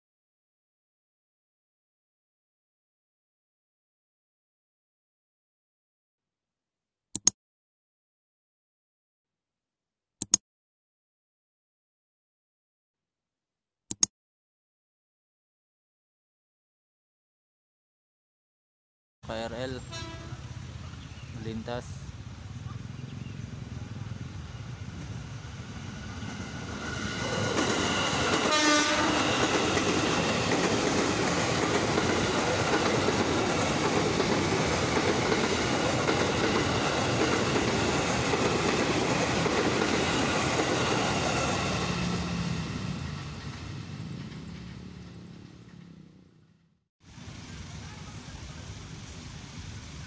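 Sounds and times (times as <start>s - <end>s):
train wheels rumbling on rails: 19.5s - 50.0s
train horn blast: 19.8s - 20.6s, 28.4s - 29.4s.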